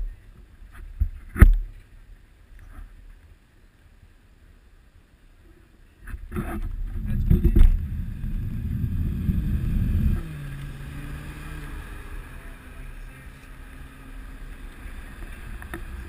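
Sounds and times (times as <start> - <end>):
street traffic hum: 0.0 - 16.0
wind rumbling on microphone: 5.4 - 16.0.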